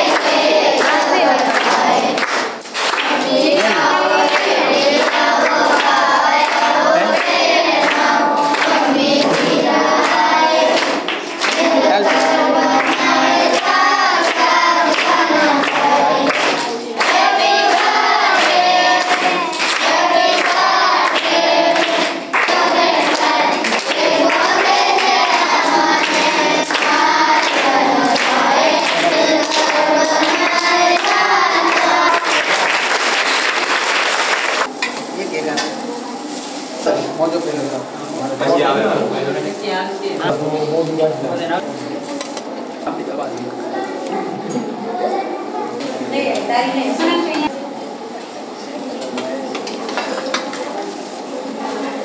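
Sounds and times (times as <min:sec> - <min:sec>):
children singing together: 0:00.0 - 0:33.6
background noise: 0:00.0 - 0:52.0.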